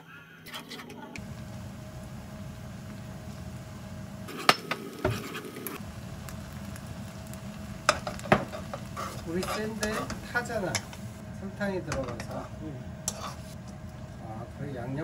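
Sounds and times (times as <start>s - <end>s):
sauce bubbling in pan: 4.9s - 11.2s.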